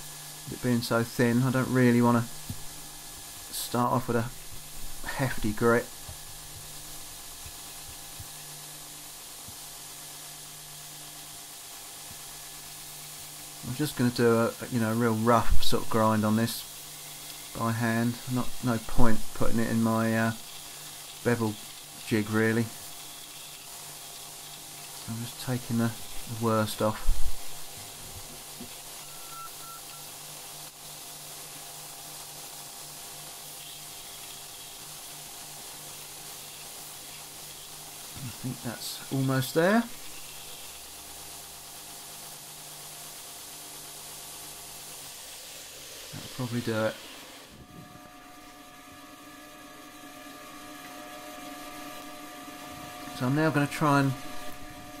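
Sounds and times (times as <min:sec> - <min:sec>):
belt grinder hissing: 0:00.0 - 0:55.0
belt grinder grinding steel: 0:46.6 - 0:55.0
low motor hum: 0:47.3 - 0:55.0.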